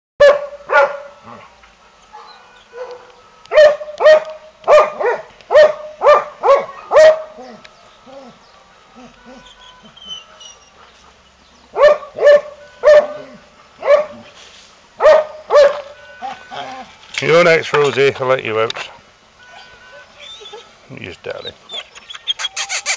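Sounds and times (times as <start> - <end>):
dog barking: 0.2 - 1.4, 2.1 - 7.5, 11.7 - 14.3, 15.0 - 16.7.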